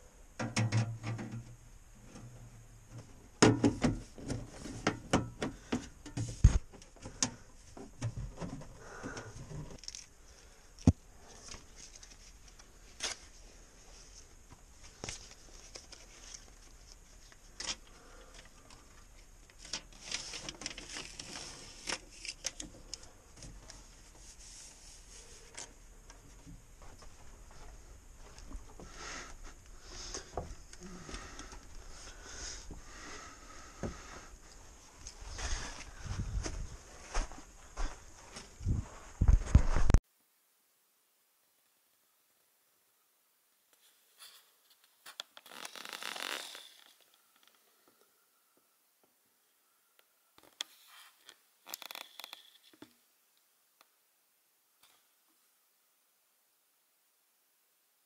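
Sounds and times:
rustling and rubbing: 23.4 - 25.8, 43.8 - 47.2.

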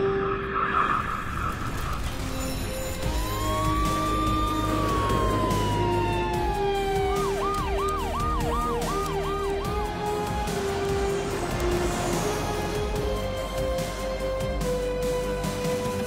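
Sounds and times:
background music: 0.0 - 16.0
siren wailing and yelping: 2.2 - 11.7.

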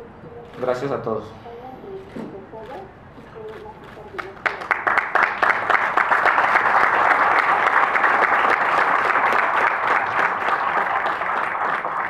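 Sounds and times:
crowd applauding: 4.1 - 12.0.

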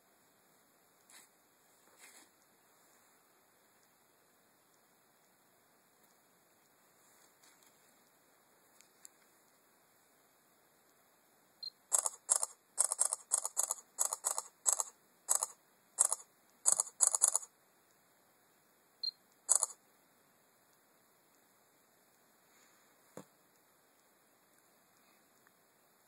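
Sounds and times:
camera shutter clicks: 11.9 - 17.5, 19.5 - 19.8.

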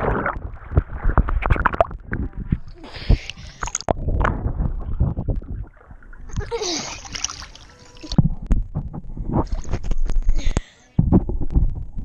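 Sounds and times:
pool water splashing: 2.8 - 8.2.

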